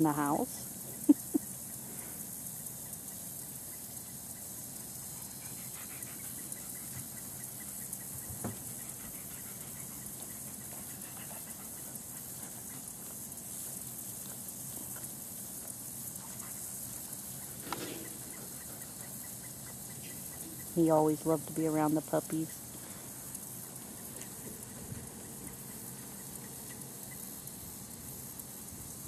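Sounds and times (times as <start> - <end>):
steady high hiss: 0.0 - 29.0
dogs panting: 5.0 - 21.6.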